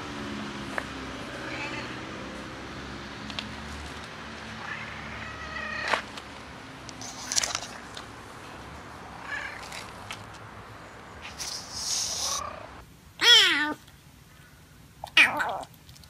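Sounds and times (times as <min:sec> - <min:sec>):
cat meowing: 0:01.4 - 0:02.0, 0:04.6 - 0:06.0, 0:12.2 - 0:13.8, 0:15.0 - 0:15.7.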